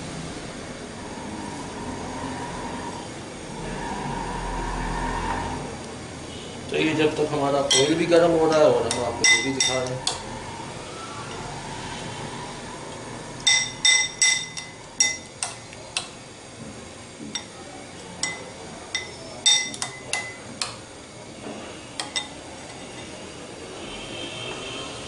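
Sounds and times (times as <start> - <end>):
spoon clinking on glass bowl: 7.7 - 10.2, 13.4 - 15.6, 18.2 - 20.4.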